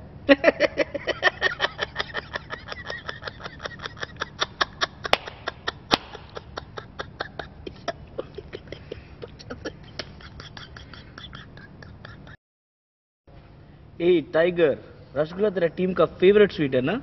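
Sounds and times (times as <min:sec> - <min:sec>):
man laughing hard: 0:00.3 - 0:12.4.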